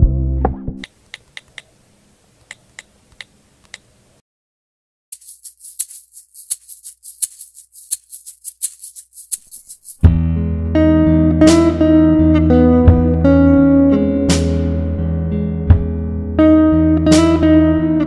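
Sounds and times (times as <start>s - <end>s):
sharp ticks: 5.2s - 10.0s
fast high-pitched rattling: 5.2s - 10.1s.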